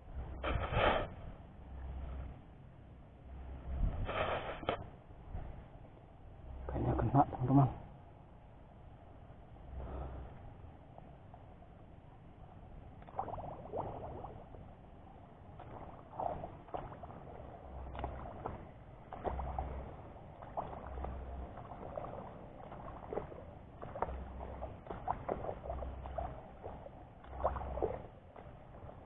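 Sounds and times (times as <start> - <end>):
footsteps squelching through mud: 15.6 - 29.0.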